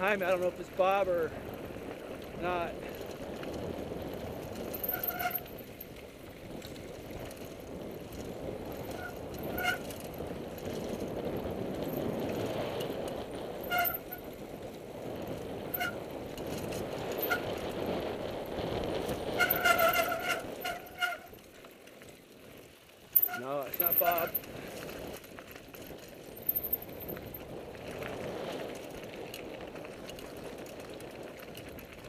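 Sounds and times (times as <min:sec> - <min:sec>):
bike tyres rumbling on dirt trail: 0:00.0 - 0:32.0
wind: 0:00.0 - 0:32.0
disc brakes squealing: 0:04.8 - 0:05.5, 0:08.8 - 0:09.9, 0:13.6 - 0:14.3, 0:15.6 - 0:16.0, 0:17.2 - 0:17.5, 0:19.3 - 0:21.3, 0:23.2 - 0:24.4.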